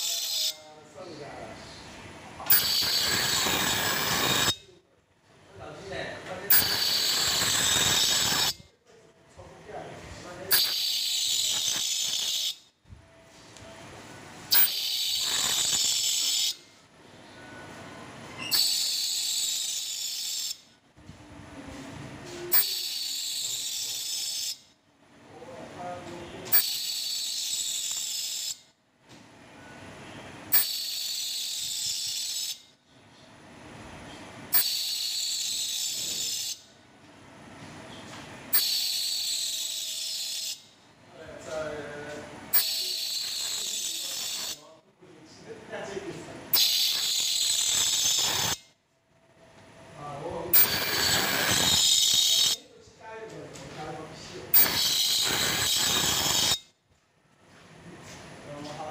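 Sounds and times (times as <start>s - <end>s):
high-pitched cavitation hiss: 2.4s - 4.6s, 6.4s - 8.6s, 10.3s - 12.6s, 14.5s - 16.6s, 46.5s - 48.6s, 50.0s - 52.6s, 54.4s - 56.6s.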